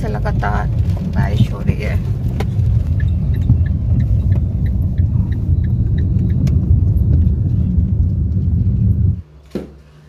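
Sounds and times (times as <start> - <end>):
car engine and tyre noise: 0.0 - 10.0
faint regular ticking: 2.0 - 7.0.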